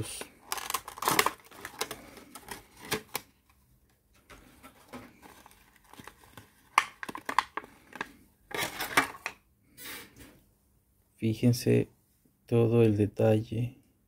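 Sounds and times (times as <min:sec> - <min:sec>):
plastic packaging crinkling and clicking: 0:00.0 - 0:03.6, 0:04.2 - 0:09.4.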